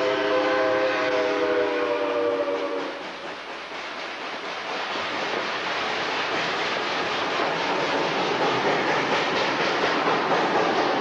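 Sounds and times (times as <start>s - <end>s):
steam locomotive chime whistle: 0.0s - 3.0s
moving train rushing noise: 0.0s - 11.0s.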